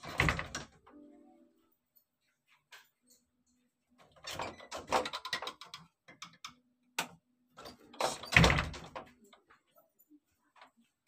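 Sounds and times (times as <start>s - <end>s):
wooden door clicks and knocks: 0.0s - 0.8s, 8.0s - 9.1s
door shutting with heavy thud: 8.1s - 9.0s.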